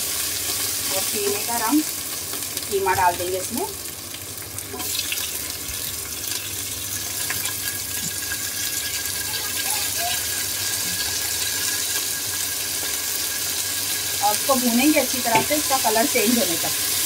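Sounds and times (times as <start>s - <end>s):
meat sizzling in hot oil: 0.0s - 17.0s.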